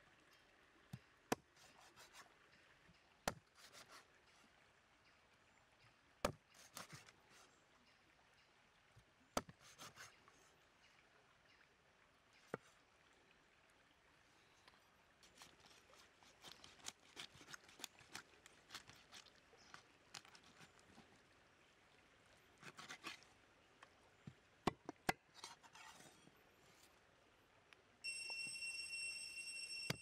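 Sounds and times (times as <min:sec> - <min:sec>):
knife cutting and scraping hide: 0:01.3 - 0:02.3, 0:03.3 - 0:04.0, 0:06.2 - 0:07.1, 0:09.4 - 0:10.2, 0:15.2 - 0:21.0, 0:22.6 - 0:23.3, 0:25.1 - 0:26.9.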